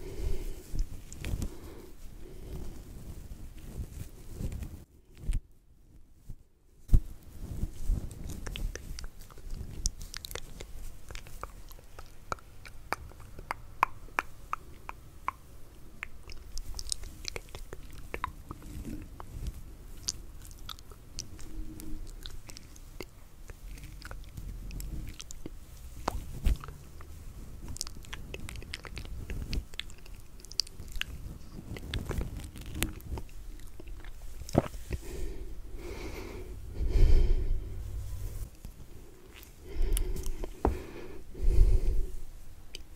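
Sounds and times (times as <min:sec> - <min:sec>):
hair rubbing on microphone cover: 0:06.9 - 0:11.1.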